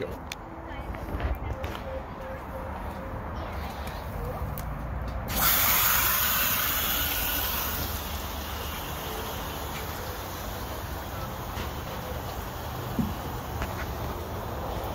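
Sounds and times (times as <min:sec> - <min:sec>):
garden hose water spraying: 0:05.3 - 0:14.9.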